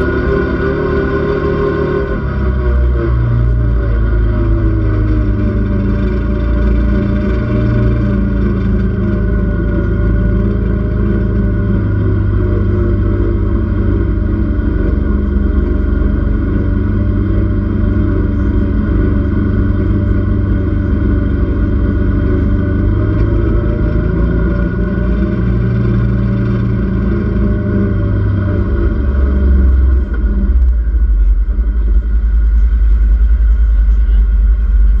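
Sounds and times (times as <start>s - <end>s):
vehicle engine running: 0.0s - 35.0s.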